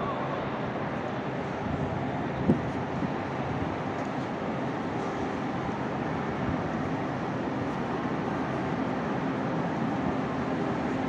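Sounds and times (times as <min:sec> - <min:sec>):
passenger train running: 0:00.0 - 0:11.0.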